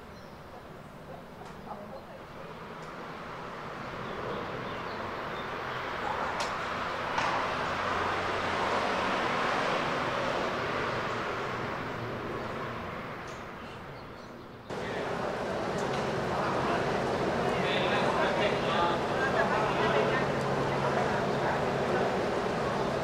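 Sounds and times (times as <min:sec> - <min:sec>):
train rushing: 0:14.7 - 0:23.0.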